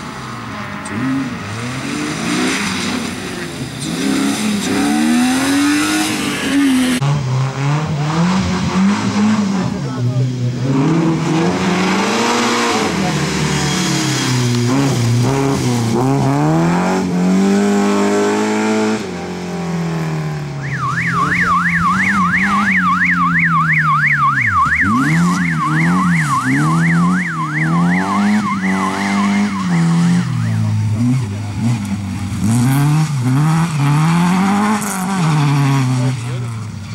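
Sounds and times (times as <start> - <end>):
rally car engine revving: 0.0 - 36.9
siren yelping: 20.6 - 30.8.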